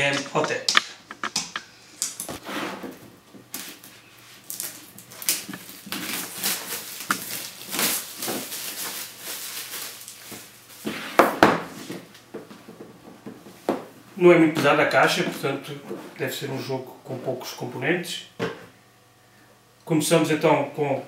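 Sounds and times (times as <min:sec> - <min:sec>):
plastic shrink-wrap crinkling: 0:03.5 - 0:10.9.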